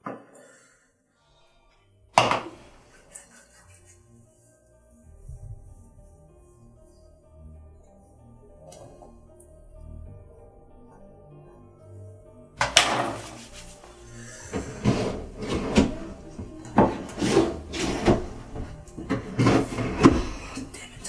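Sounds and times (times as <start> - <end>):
items rattling in drawers: 14.5 - 20.3
wooden drawer sliding open: 14.5 - 20.4.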